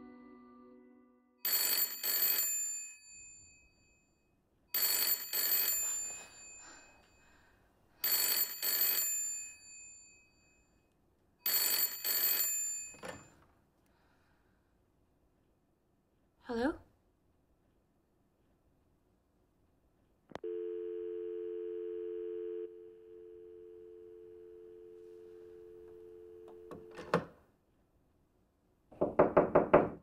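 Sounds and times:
telephone bell ringing: 0:01.4 - 0:03.8, 0:04.7 - 0:07.0, 0:08.0 - 0:10.5, 0:11.4 - 0:13.3, 0:20.5 - 0:27.0.

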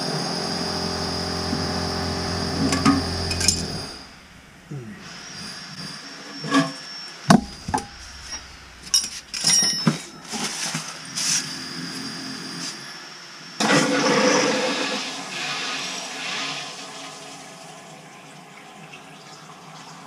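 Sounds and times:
mechanical hum: 0:00.0 - 0:15.5.

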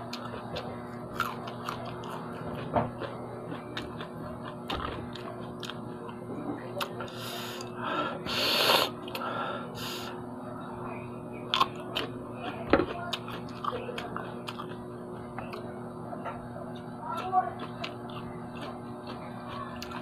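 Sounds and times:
chewing with crisp clicks: 0:00.1 - 0:06.2, 0:11.5 - 0:15.7, 0:16.3 - 0:20.0
man breathy hisses: 0:08.3 - 0:08.9.

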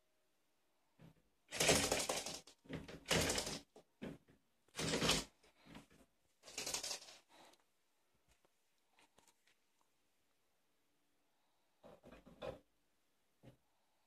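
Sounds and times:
rabbit scratching at door: 0:01.5 - 0:03.8, 0:04.7 - 0:07.2.

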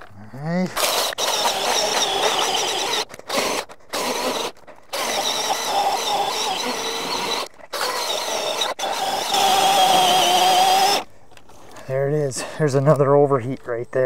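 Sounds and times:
electric chainsaw cutting log: 0:00.8 - 0:11.1.

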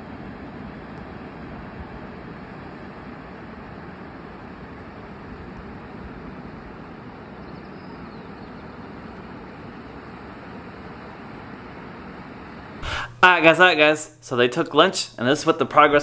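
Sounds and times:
wind rumbling on microphone: 0:00.0 - 0:12.8.

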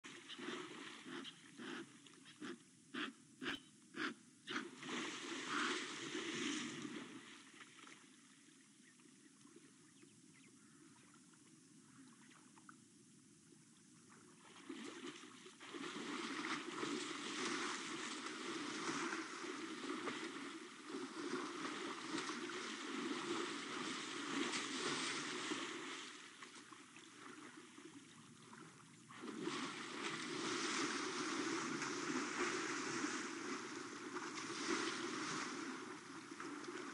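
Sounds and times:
elephant splashing in water: 0:00.0 - 0:02.0, 0:04.6 - 0:08.3, 0:14.3 - 0:36.9.

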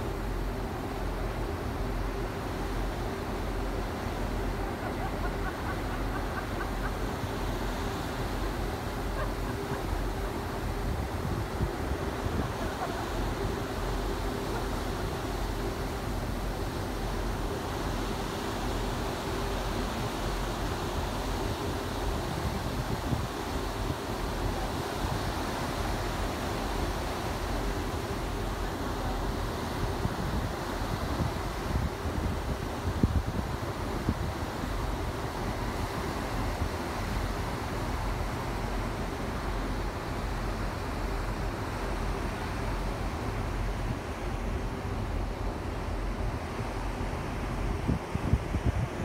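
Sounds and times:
wind and sea rushing: 0:00.0 - 0:49.0
wind buffeting microphone: 0:46.0 - 0:49.0.

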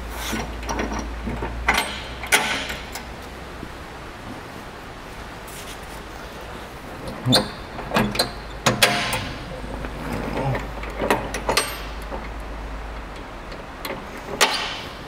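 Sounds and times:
sharp metallic clanks and knocks: 0:00.3 - 0:03.1, 0:07.2 - 0:12.4, 0:13.8 - 0:15.0.

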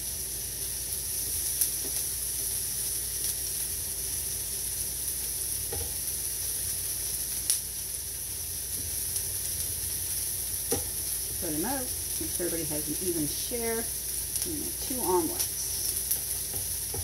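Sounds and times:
food sizzling on a griddle: 0:00.0 - 0:17.0
exhaust fan humming: 0:09.2 - 0:17.0.

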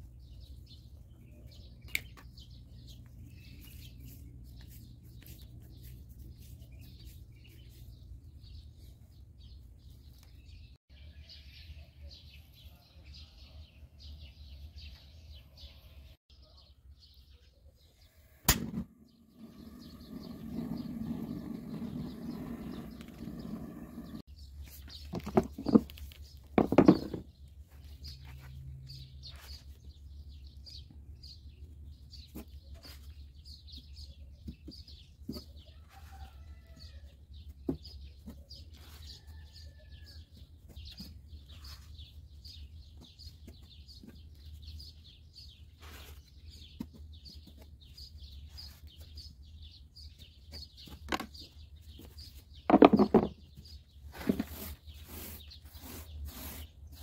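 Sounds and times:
plastic trays knocking on wood: 0:26.6 - 0:27.2, 0:52.7 - 0:53.4.

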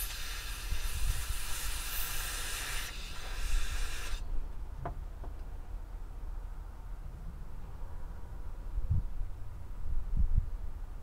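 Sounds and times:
pressurised air jet hissing: 0:00.0 - 0:04.3.

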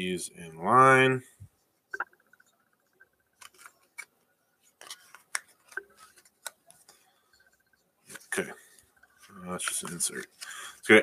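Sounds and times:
trading cards clicking and rustling: 0:03.0 - 0:10.6.

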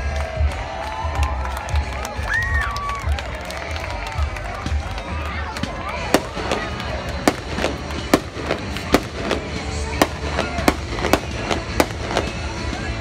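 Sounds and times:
fireworks bursting with echo: 0:04.6 - 0:13.0.

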